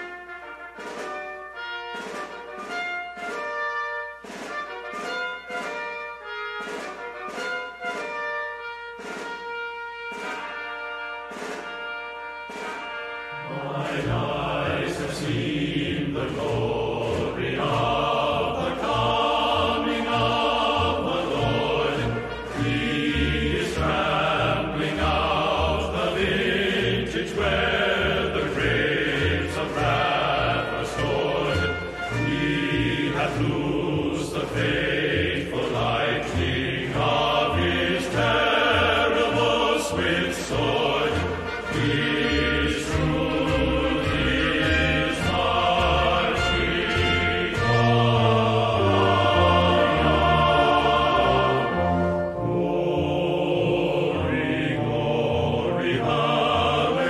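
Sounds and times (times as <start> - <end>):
choir-like voices singing: 13.3 - 57.0.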